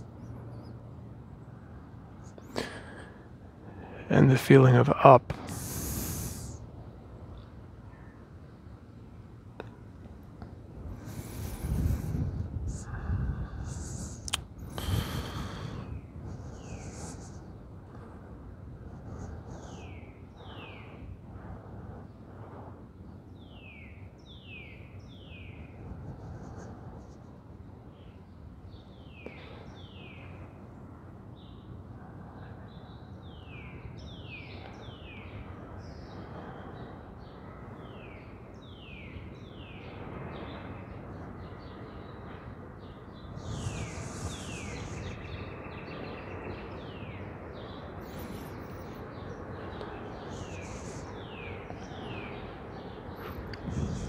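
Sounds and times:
outdoor background noise: 0:00.0 - 0:54.0
rush of noise: 0:01.5 - 0:08.4, 0:10.6 - 0:23.0, 0:39.8 - 0:54.0.

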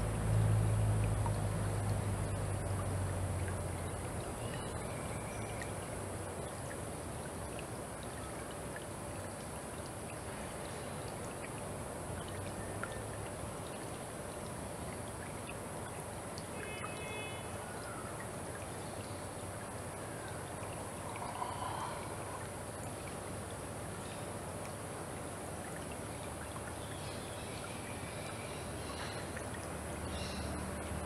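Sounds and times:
stream trickling: 0:00.0 - 0:31.0
low engine-like drone: 0:20.8 - 0:22.5.

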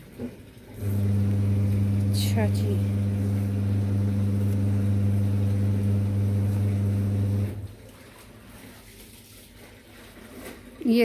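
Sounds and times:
loud low machine hum: 0:00.8 - 0:07.7.

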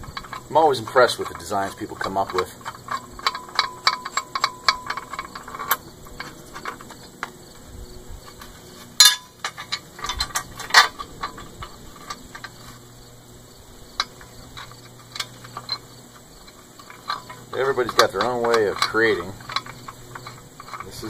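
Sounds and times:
metallic clicks and clinks: 0:00.0 - 0:07.2, 0:14.0 - 0:21.0.

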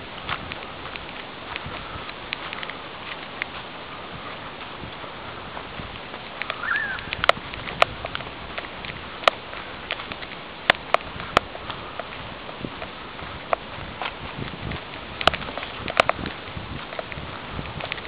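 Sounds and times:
footsteps on rough ground: 0:00.0 - 0:18.0
steady hiss: 0:00.0 - 0:18.0
sharp clicks and snaps: 0:06.2 - 0:12.1, 0:15.2 - 0:16.3
short high chirp: 0:06.6 - 0:07.1.

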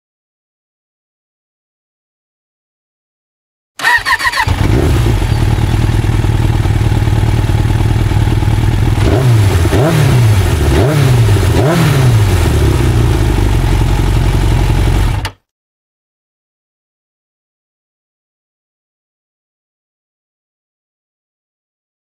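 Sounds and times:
motorcycle engine idling and revving: 0:03.8 - 0:15.4.

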